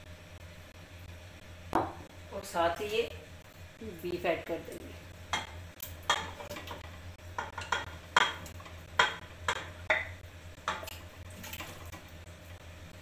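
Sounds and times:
steady low hum: 0.0 - 13.0
spoon knocking in metal pot: 7.4 - 10.9.

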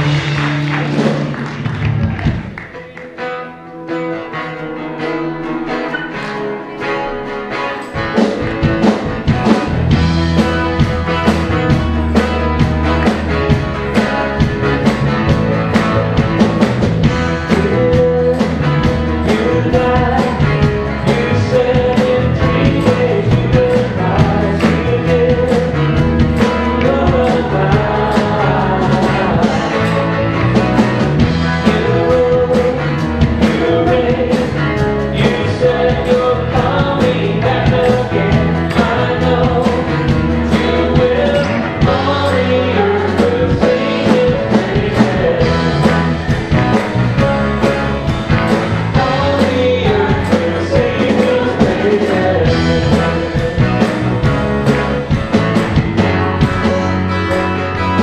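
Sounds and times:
strummed acoustic guitar: 2.6 - 58.0
man singing: 17.0 - 46.8, 48.4 - 54.7.

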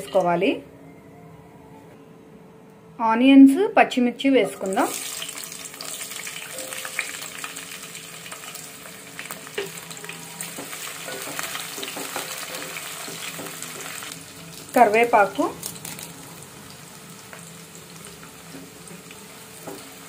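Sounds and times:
onions sizzling in hot oil: 4.6 - 20.0.

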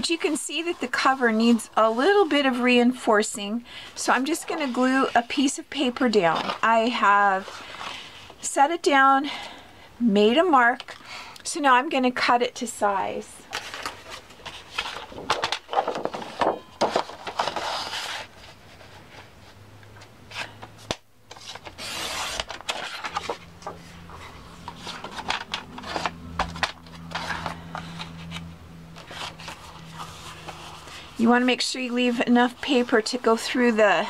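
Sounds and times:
paper rustles and taps: 13.6 - 17.8, 24.7 - 29.6
paper rubbed on tabletop: 27.0 - 34.0.

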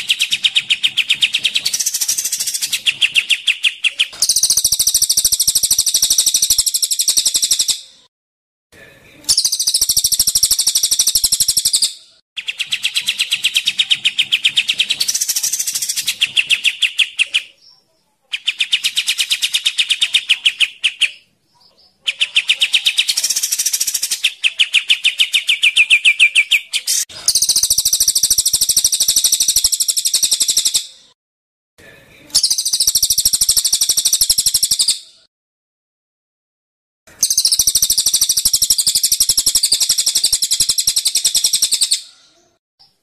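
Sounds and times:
harsh buzzy rattling bird trill: 37.2 - 41.8.

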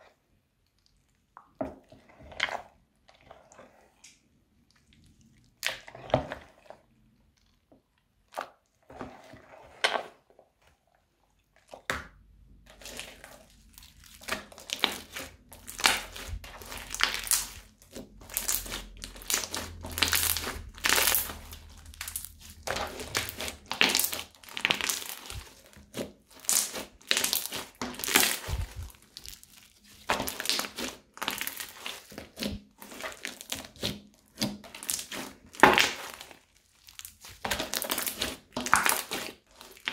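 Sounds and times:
crunchy slime crackling: 12.6 - 39.9.

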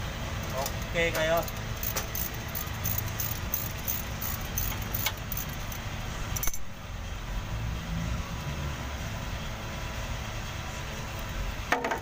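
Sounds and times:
socket wrench clicking: 1.4 - 5.8.

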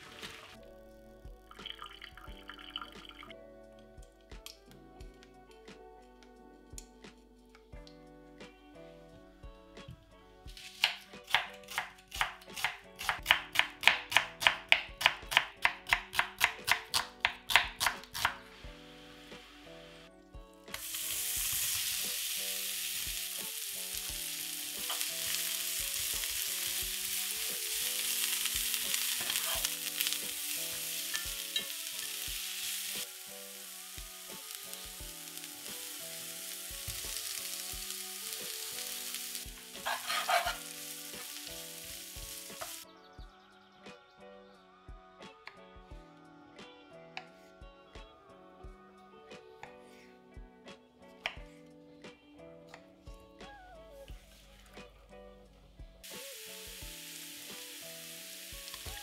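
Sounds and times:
onion sizzling in frying pan: 0.0 - 0.6, 20.7 - 42.8, 56.0 - 59.0.

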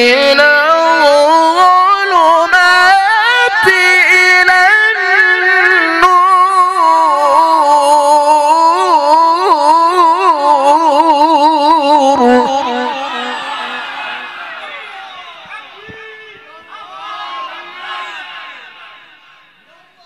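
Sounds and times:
man chanting into microphone: 0.0 - 14.3.

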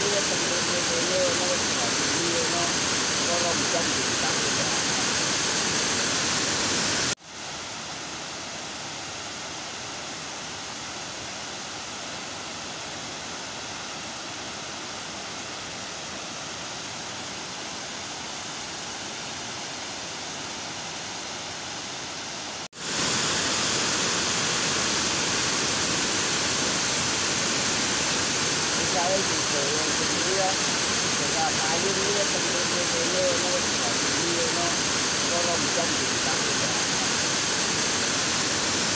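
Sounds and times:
water rushing over a weir: 0.0 - 7.2, 22.8 - 38.9.

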